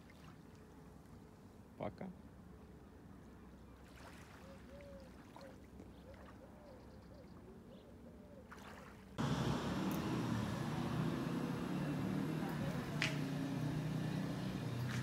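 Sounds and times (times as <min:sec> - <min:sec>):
calm seashore ambience: 0:00.0 - 0:15.0
street noise with deep rush: 0:09.2 - 0:15.0.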